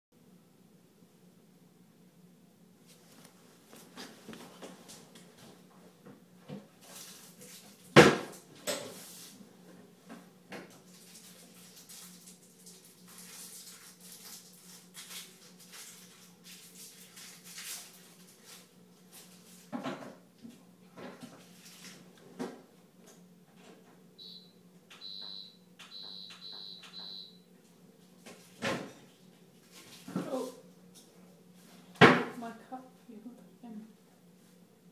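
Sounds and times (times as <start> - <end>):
dishwasher beeps: 24.2 - 27.5.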